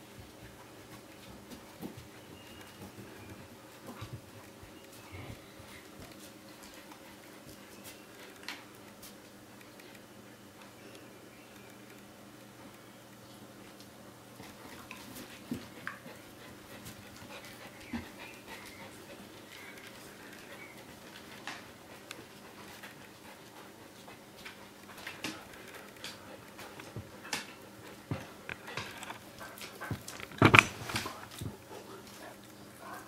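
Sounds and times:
dogs panting: 0:00.2 - 0:08.6, 0:14.3 - 0:33.0
claws clicking on tiled floor: 0:24.4 - 0:31.5.

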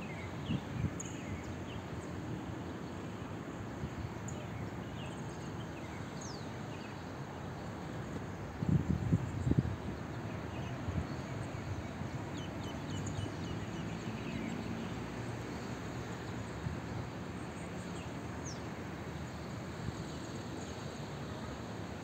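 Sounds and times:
steady background hiss: 0:00.0 - 0:22.0.

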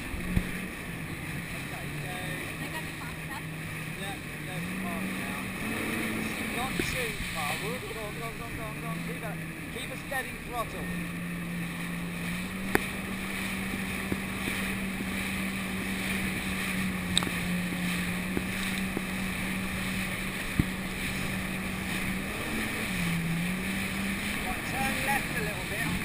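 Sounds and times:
jet ski engine running: 0:00.0 - 0:26.0
rush of spray: 0:11.4 - 0:26.0.

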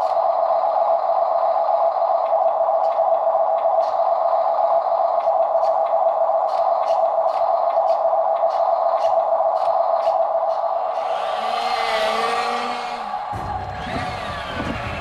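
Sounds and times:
toy electric motor whirring: 0:06.5 - 0:15.0.

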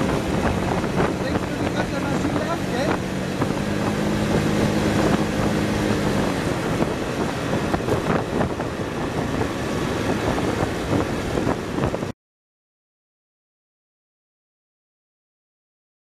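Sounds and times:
engine hum: 0:00.0 - 0:12.1
road noise rushing: 0:00.0 - 0:12.1
wind buffeting microphone: 0:00.0 - 0:12.1.

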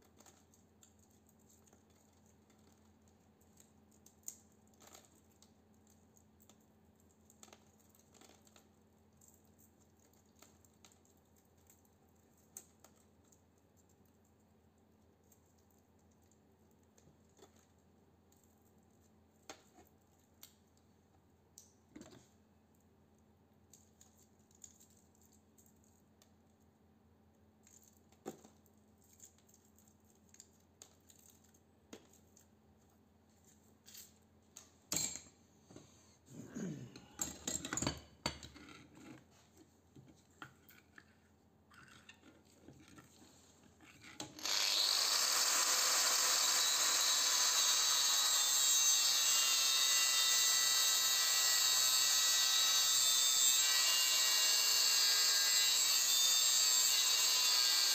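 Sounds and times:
angle grinder cutting steel: 0:44.4 - 0:57.9.

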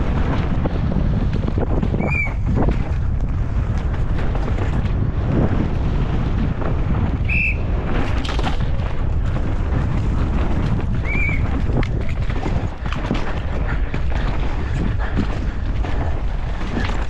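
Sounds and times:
bike clattering over bumps: 0:00.0 - 0:17.0
tyres on loose dirt: 0:00.0 - 0:17.0
wind rush on microphone: 0:00.0 - 0:17.0
short high whistle-like tones: 0:07.2 - 0:07.6.

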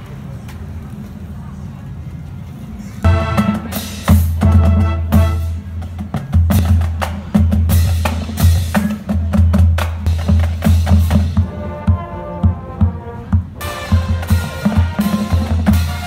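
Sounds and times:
brass chord: 0:03.0 - 0:05.6, 0:11.4 - 0:16.0
snare and bass drums: 0:03.0 - 0:16.0.

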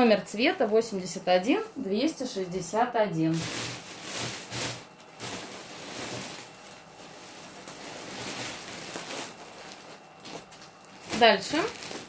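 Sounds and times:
plastic packaging crinkling: 0:03.3 - 0:12.0.

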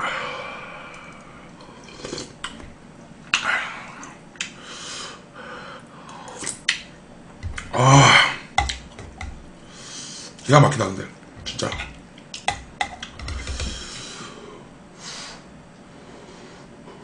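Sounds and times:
man slurping soup: 0:01.7 - 0:02.4.

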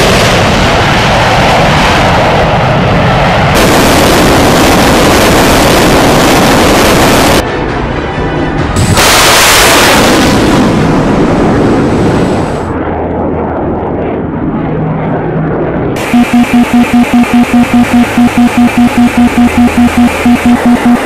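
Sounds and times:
missile launch blast: 0:08.8 - 0:11.1
pulsing music beat: 0:16.0 - 0:21.0.

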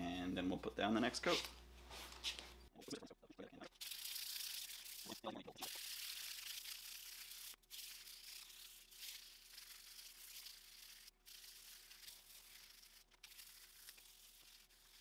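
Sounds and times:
sandpaper rubbing on wood: 0:05.7 - 0:15.0.

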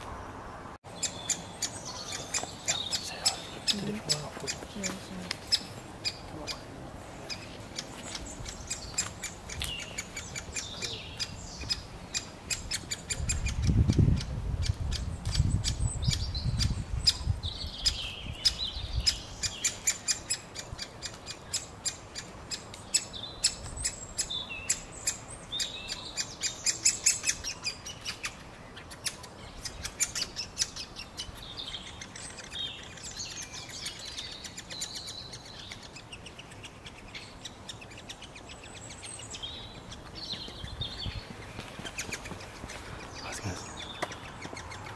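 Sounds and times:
woodpecker nestling chirping: 0:00.9 - 0:44.9.

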